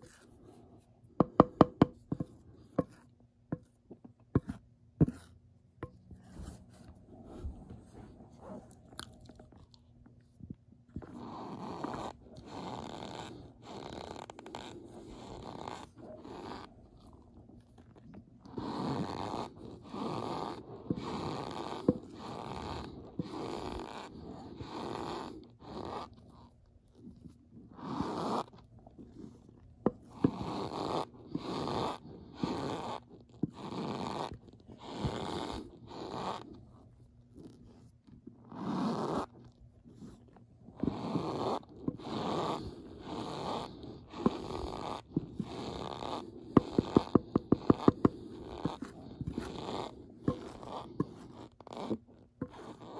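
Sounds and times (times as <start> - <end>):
cornstarch squeaking and crunching: 40.9 - 52.9.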